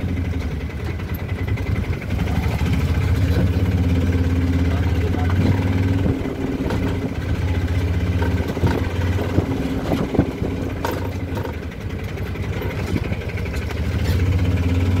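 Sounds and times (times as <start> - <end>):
small engine running: 0.0 - 15.0
rattling knocks: 8.0 - 11.9.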